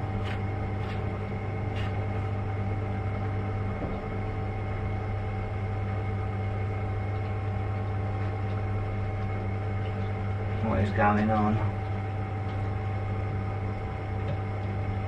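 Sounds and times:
pumps humming: 0:00.0 - 0:15.0
person talking: 0:10.6 - 0:11.8.

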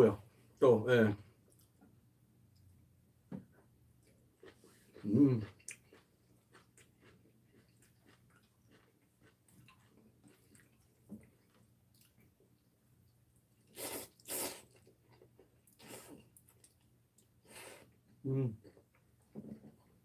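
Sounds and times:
faint chewing: 0:01.4 - 0:02.8, 0:03.5 - 0:20.0
loud noodle slurps: 0:13.7 - 0:14.8.

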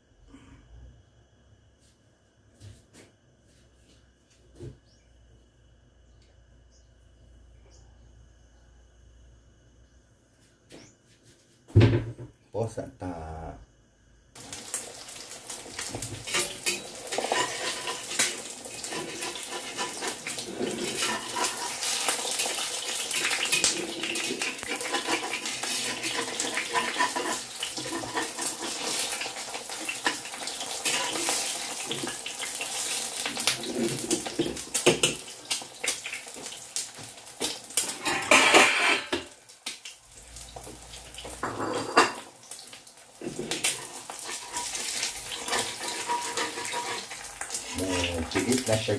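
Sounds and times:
egg sizzling in oil: 0:14.4 - 0:48.9
metal spatula scraping a wok: 0:16.2 - 0:32.0, 0:37.8 - 0:39.3, 0:43.3 - 0:48.0.

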